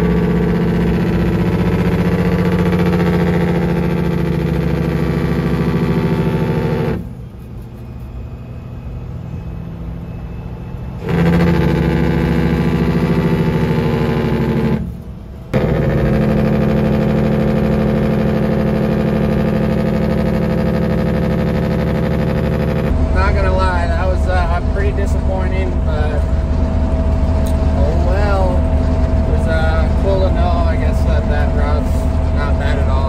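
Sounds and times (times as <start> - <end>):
truck engine brake rattling: 0.0 - 8.2
engine hum: 0.0 - 33.0.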